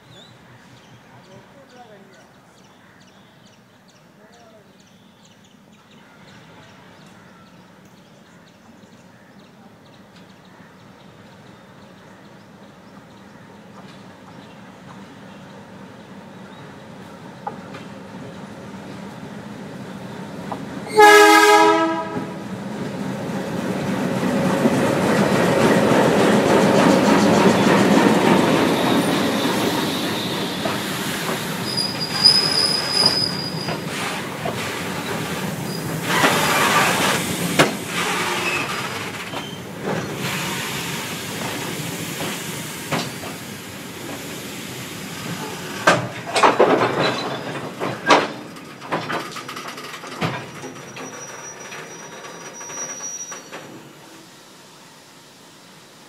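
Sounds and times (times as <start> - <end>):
locomotive horn blast: 20.9 - 22.4
high wheel squeal: 28.6 - 37.3, 37.9 - 39.7, 50.7 - 53.7
wheels clattering over rail joints: 30.5 - 40.2, 45.2 - 53.9.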